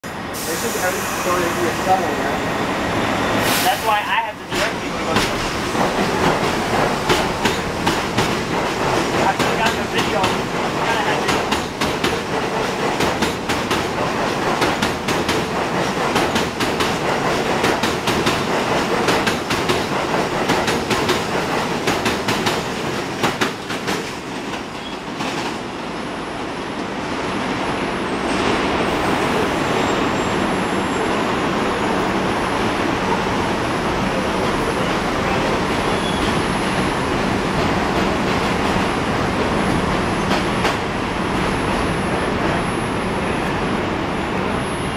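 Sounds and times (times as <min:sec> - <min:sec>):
steady rushing noise: 0:01.4 - 0:24.6
train wheels clattering: 0:04.4 - 0:25.6, 0:35.4 - 0:41.9.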